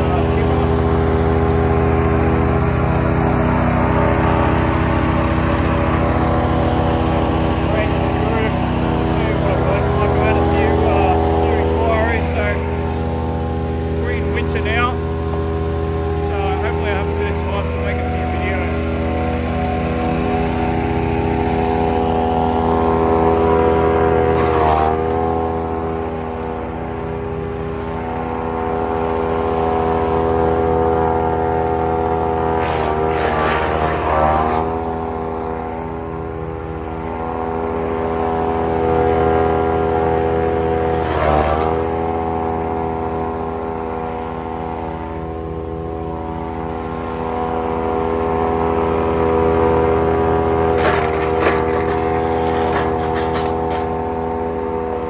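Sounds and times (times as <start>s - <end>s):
small petrol engine running: 0.0s - 55.0s
wood chipping noise: 24.2s - 25.5s, 32.6s - 34.8s, 40.9s - 42.6s, 50.7s - 54.2s.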